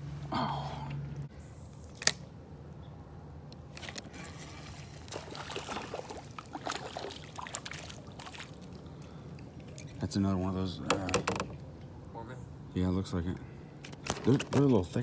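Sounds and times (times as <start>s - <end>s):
fish splashing in water: 3.8s - 10.0s.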